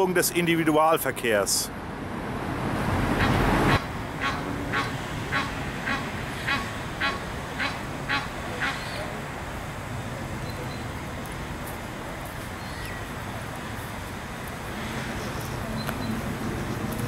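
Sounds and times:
goose honking: 3.2 - 9.0.

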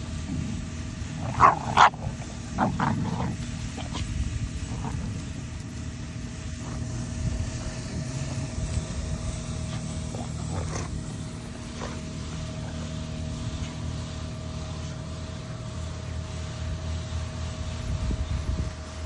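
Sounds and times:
dogs growling: 0.0 - 15.6
constant hum: 0.0 - 19.0.

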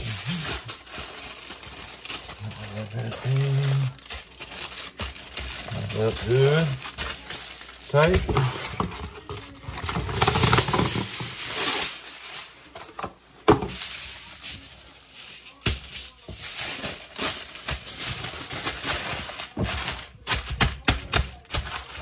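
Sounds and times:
aluminium foil tearing: 0.0 - 12.8, 13.7 - 22.0
foil crinkling and crackling: 0.0 - 13.0, 13.6 - 22.0.

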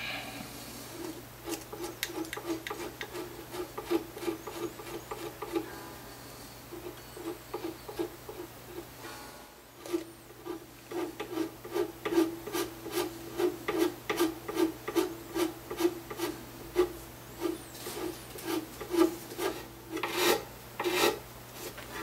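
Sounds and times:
file scraping in guitar nut slot: 9.8 - 21.2.

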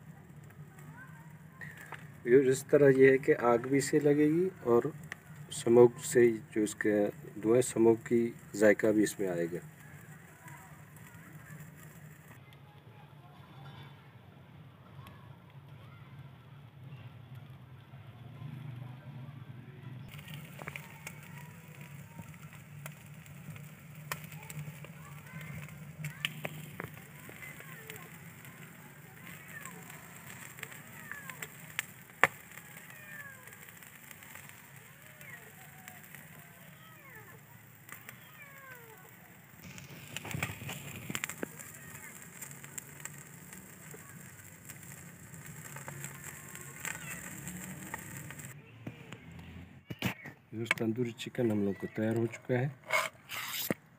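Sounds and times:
fire crackling: 0.0 - 13.9, 19.9 - 53.9
sharp pops: 20.1 - 50.9, 52.1 - 53.9.

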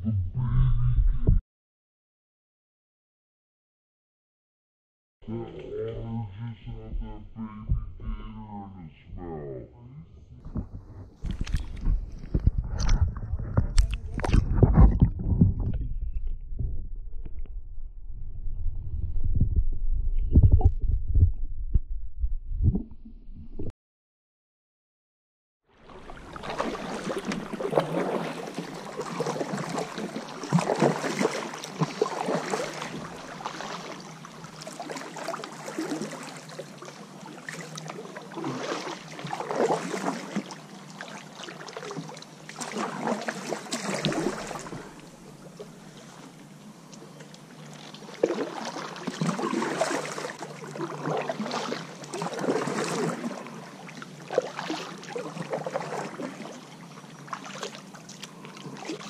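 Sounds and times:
kayak paddle splashing: 25.8 - 59.0.

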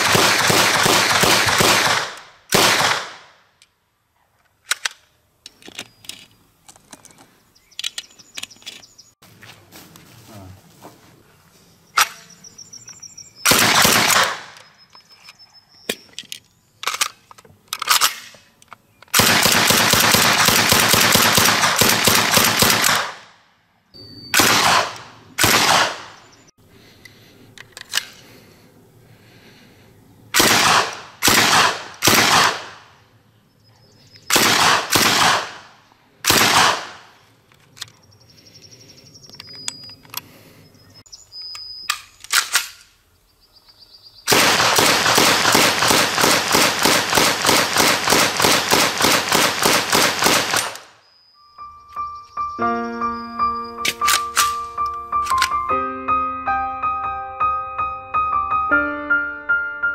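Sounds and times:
submachine gun firing bursts: 0.0 - 3.2, 13.5 - 14.5, 19.2 - 23.2, 24.4 - 26.0, 30.4 - 32.8, 34.3 - 35.6, 36.3 - 37.0, 44.3 - 50.8.

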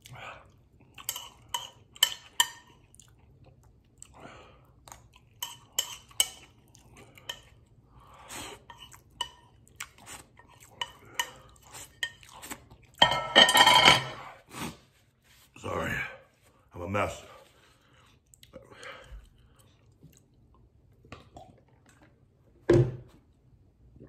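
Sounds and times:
man chewing: 0.0 - 13.0, 17.6 - 22.4.

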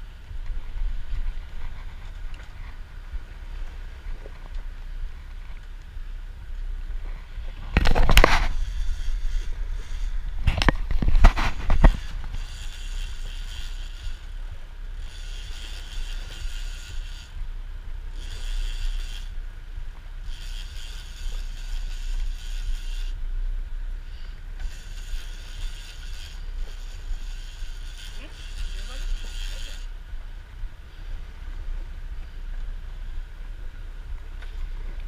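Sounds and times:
boat engine rumble: 0.0 - 35.0
high rasping mechanical sound: 5.0 - 32.9.

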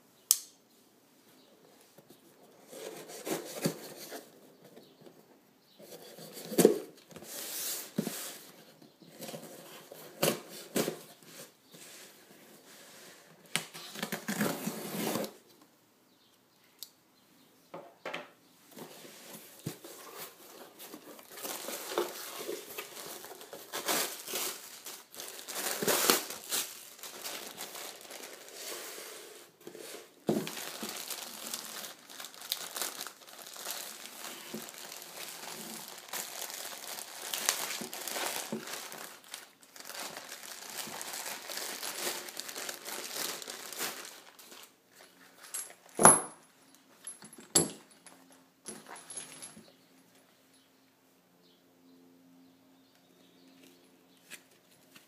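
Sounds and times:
packing tape tearing from box: 13.6 - 15.4, 20.2 - 29.0, 29.7 - 44.6
plastic bag crinkling: 20.3 - 29.0, 29.7 - 45.2.

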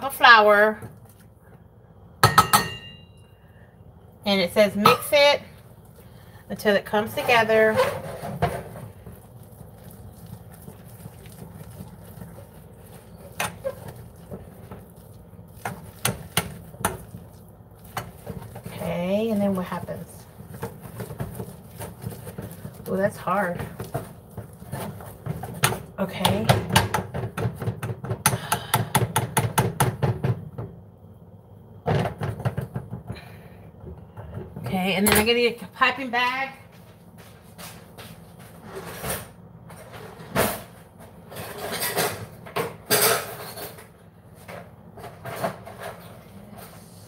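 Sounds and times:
utensil stirring thick dough: 4.3 - 30.0
whisk clattering against pot: 7.0 - 30.2.

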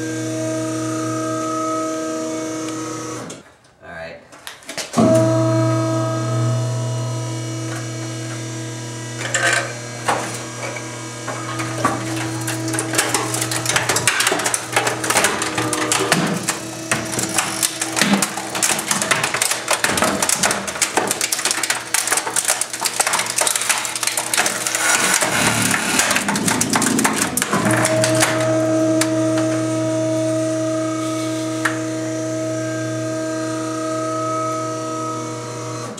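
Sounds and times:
machine hum: 5.0 - 35.9
metal and plastic crackling and snapping: 9.2 - 29.6.

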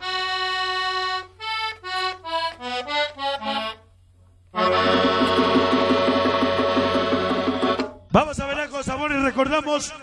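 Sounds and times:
solo accordion: 0.0 - 8.0.

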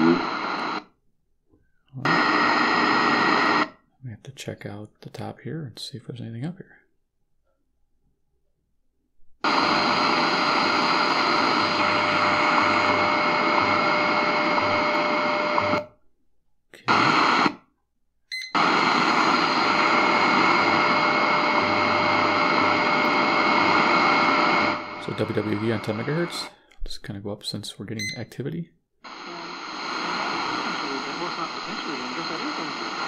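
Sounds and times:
radio static hissing: 0.0 - 0.8, 2.0 - 3.7, 9.4 - 15.9, 16.8 - 17.6, 18.6 - 26.6, 29.1 - 33.0.

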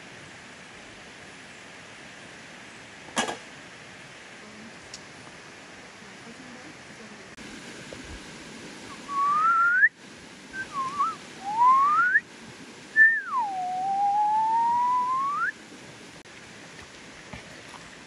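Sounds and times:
person whistling sliding notes: 9.1 - 9.9, 10.6 - 12.2, 13.0 - 15.5.

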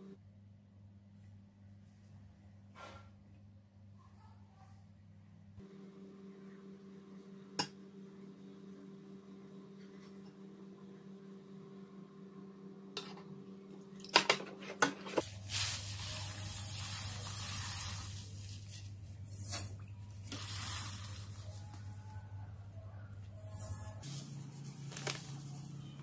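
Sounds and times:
sugar grains pouring: 15.3 - 18.5.

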